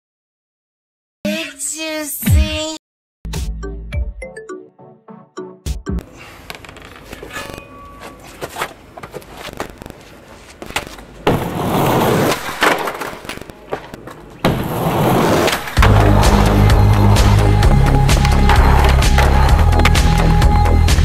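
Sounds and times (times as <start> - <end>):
skateboard wheels rolling on concrete: 8.2 - 21.0
skateboard knocks and clacks: 10.6 - 16.4.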